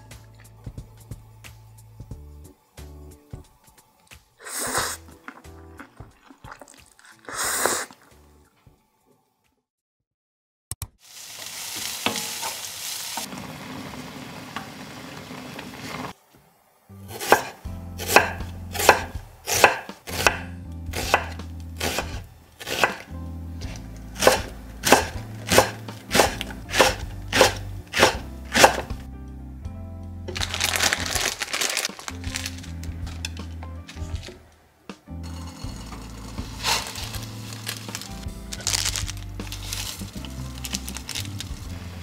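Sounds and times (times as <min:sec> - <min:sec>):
knife slicing onion on board: 0:17.1 - 0:29.0.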